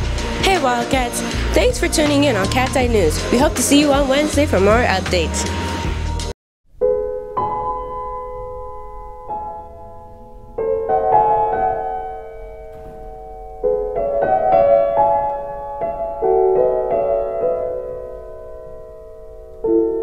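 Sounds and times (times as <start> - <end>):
piano playing slow chords: 6.7 - 20.0.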